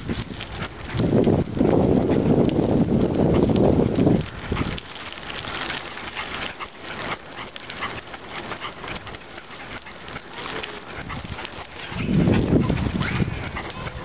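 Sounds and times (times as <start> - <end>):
bicycle tyres crunching dry leaves: 2.4 - 8.9.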